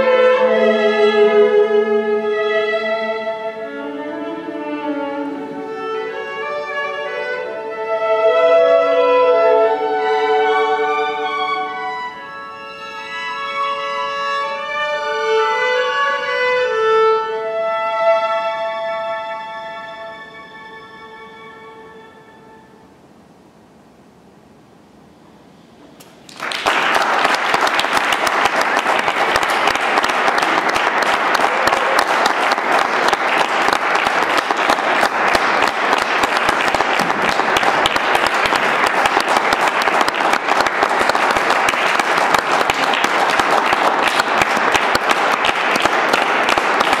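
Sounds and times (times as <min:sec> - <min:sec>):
audience applauding: 0:26.0 - 0:47.0.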